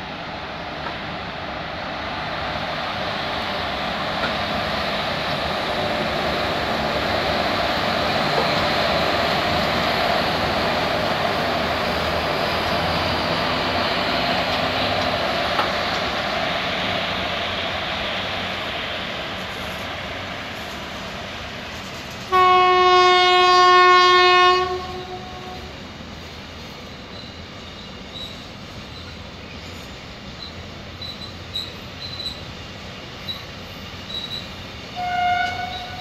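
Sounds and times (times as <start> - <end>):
train wheels rumbling on rails: 0.0 - 36.0
train horn: 22.3 - 25.8, 35.0 - 36.0.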